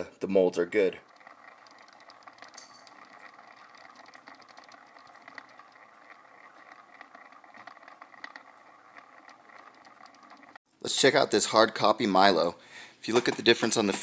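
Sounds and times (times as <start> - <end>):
light irregular ticking: 0.6 - 10.6
turntable motor hum: 0.7 - 10.6.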